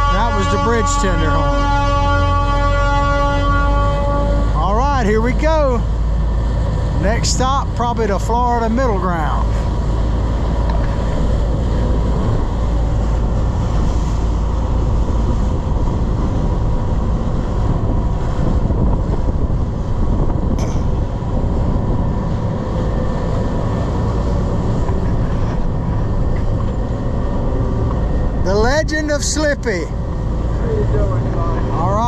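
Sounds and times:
boat engines droning: 0:00.0 - 0:32.0
rushing water: 0:00.0 - 0:32.0
wind on microphone: 0:09.4 - 0:29.2.

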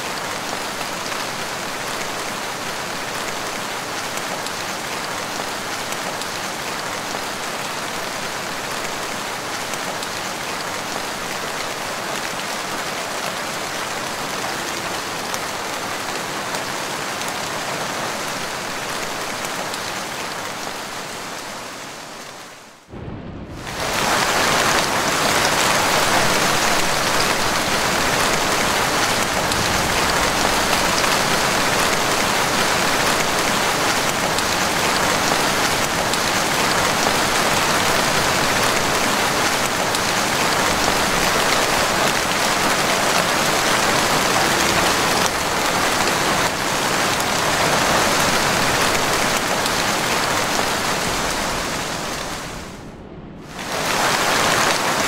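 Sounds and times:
heavy rain falling: 0:00.0 - 0:55.0.

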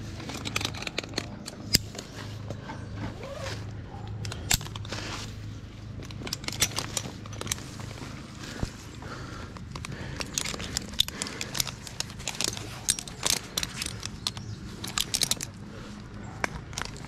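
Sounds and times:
metal climbing hardware clinking: 0:00.0 - 0:17.0
rustling: 0:00.0 - 0:17.0.

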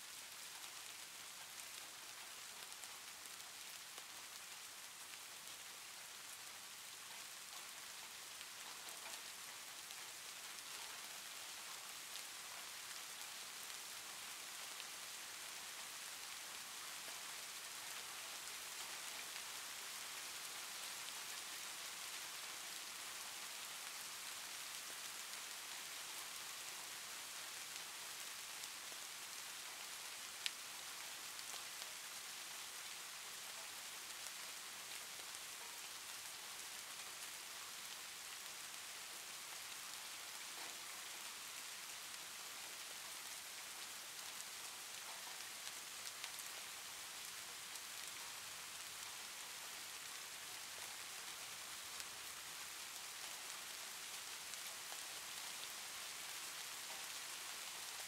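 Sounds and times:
steady hiss: 0:00.0 - 0:58.0
faint ticks: 0:07.1 - 0:13.5, 0:20.2 - 0:41.7, 0:42.5 - 0:49.2, 0:51.8 - 0:58.0.

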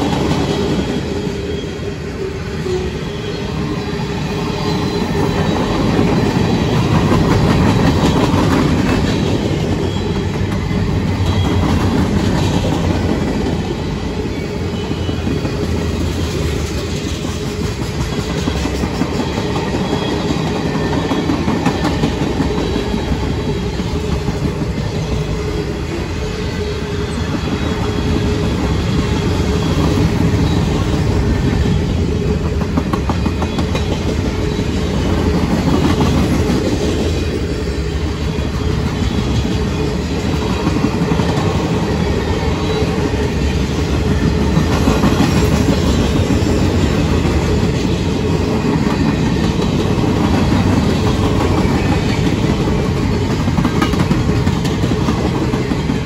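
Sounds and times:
train wheels rumbling on rails: 0:00.0 - 0:56.0.

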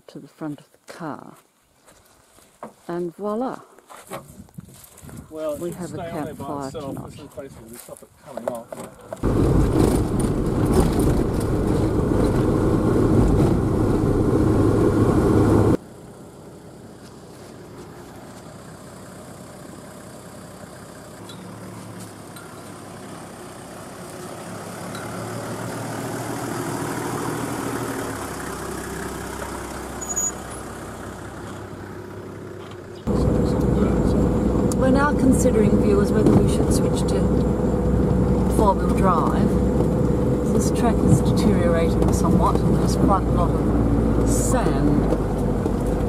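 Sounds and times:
vehicle engine and road rumble: 0:02.1 - 0:46.0
vehicle driving past: 0:09.2 - 0:15.8, 0:18.8 - 0:44.3.

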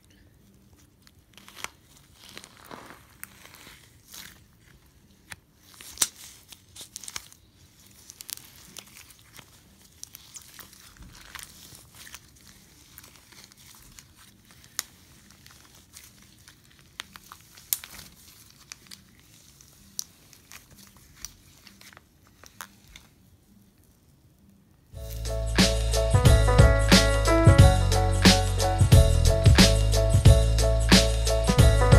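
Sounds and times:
slime squeezed with crackles: 0:00.0 - 0:24.4.

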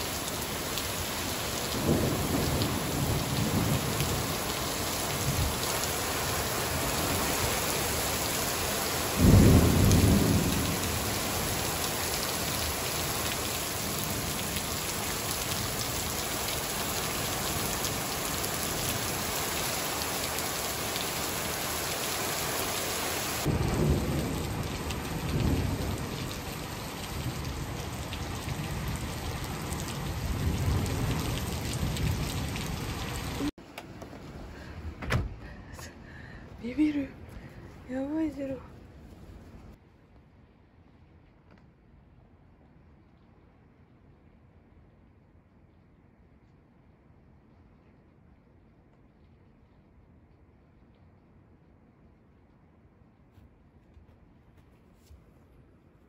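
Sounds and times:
thunder rumbling: 0:00.0 - 0:07.8, 0:09.0 - 0:19.3, 0:23.4 - 0:33.5
torrential rain hissing: 0:00.0 - 0:38.5.

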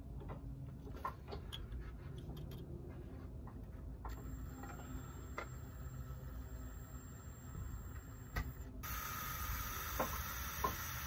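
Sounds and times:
cordless drill turning slowly: 0:04.1 - 0:11.0
drill bit ticking on steel: 0:04.1 - 0:11.0.

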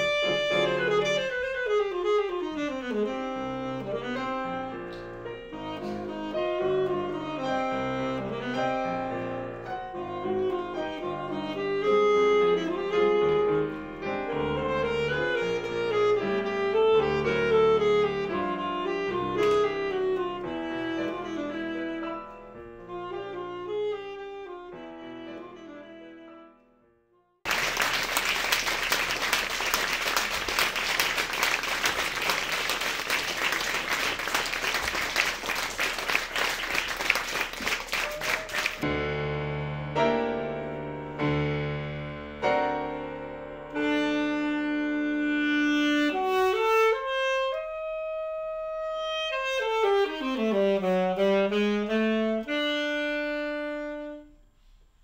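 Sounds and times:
alto saxophone melody: 0:00.0 - 0:39.0, 0:42.3 - 0:54.8
piano accompaniment: 0:00.0 - 0:54.3
audience applause: 0:27.5 - 0:38.9.

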